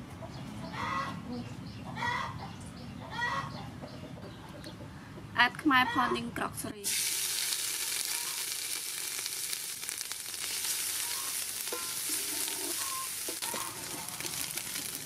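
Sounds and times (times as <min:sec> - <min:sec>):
paste sizzling in hot oil: 0:06.8 - 0:15.0
wooden ladle stirring: 0:11.3 - 0:15.0.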